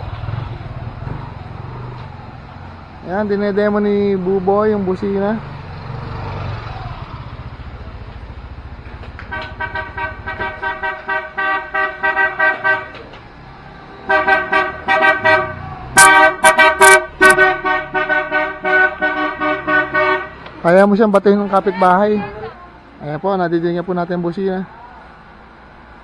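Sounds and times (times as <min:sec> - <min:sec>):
scooter engine humming: 0:00.0 - 0:23.2
scooter horn tooting: 0:09.3 - 0:13.0, 0:14.1 - 0:20.4.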